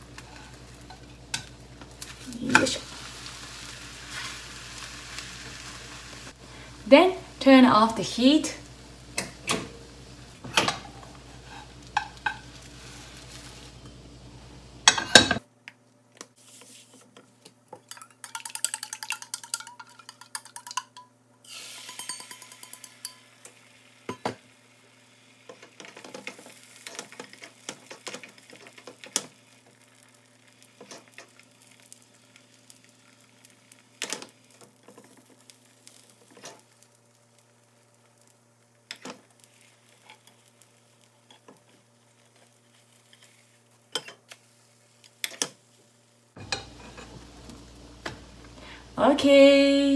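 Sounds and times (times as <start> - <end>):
omelette sizzling: 0.0 - 15.5, 16.3 - 49.9
chopsticks tapping in frying pan: 11.9 - 12.6, 17.9 - 21.1, 21.9 - 23.3.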